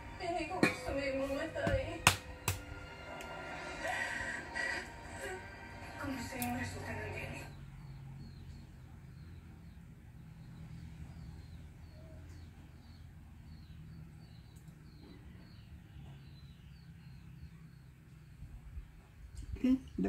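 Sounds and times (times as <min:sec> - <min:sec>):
small bird chirping: 0:06.4 - 0:20.0.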